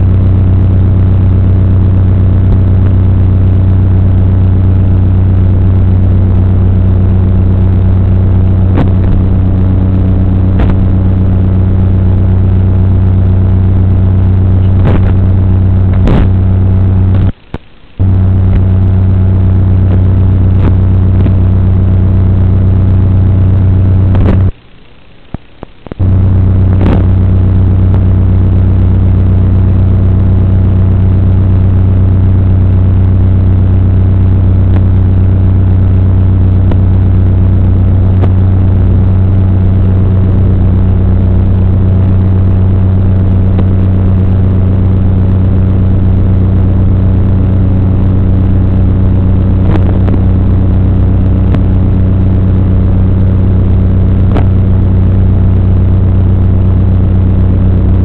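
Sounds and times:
electrical buzzing hum: 0.0 - 58.0
clicks: 17.1 - 18.7.

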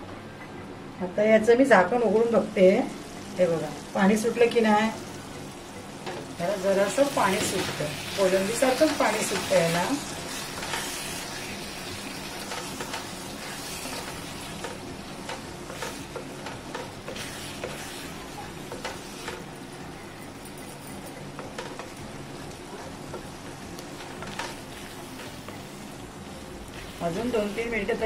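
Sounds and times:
shrimp sizzling in a pan: 2.6 - 20.4, 21.2 - 28.0
wooden spatula scraping a pan: 8.4 - 11.5, 15.3 - 19.4.

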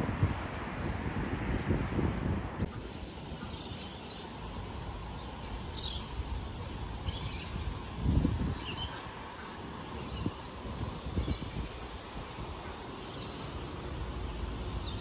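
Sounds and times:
wind rumble on microphone: 0.0 - 2.8, 6.4 - 9.1, 9.8 - 15.0.

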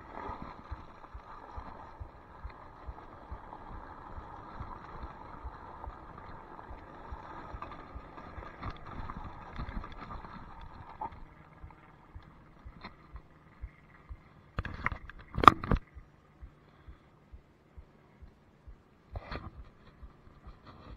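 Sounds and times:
faint steady hum: 0.0 - 20.9
scooter rattling: 5.1 - 16.0.

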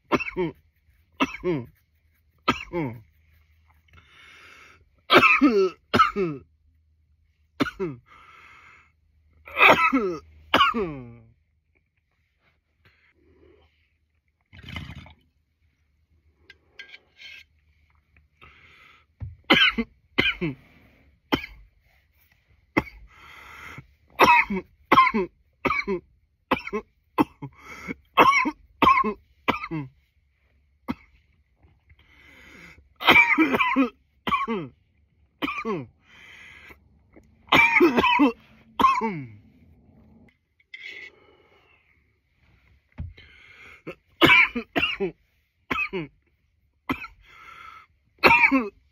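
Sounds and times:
man coughing: 0.0 - 0.6, 1.2 - 1.8, 2.4 - 3.0, 5.1 - 6.4, 7.6 - 8.1, 9.5 - 11.2, 19.5 - 20.6, 24.2 - 29.9, 33.0 - 34.8, 35.4 - 35.9, 37.5 - 39.4, 43.8 - 46.2, 46.9 - 47.2, 48.2 - 48.9.

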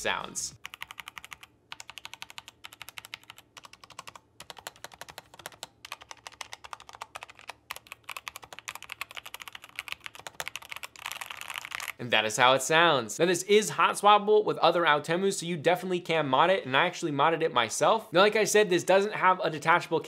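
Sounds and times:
fast mechanical keyboard typing: 0.6 - 12.0.

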